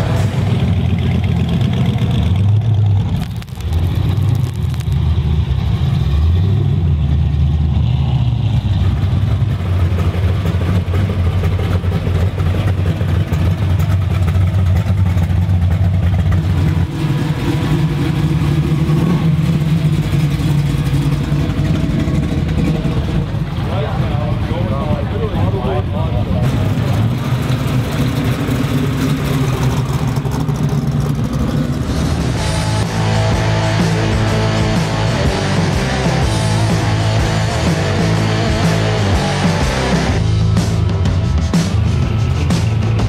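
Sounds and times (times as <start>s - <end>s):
car engines rumbling: 0.0s - 43.0s.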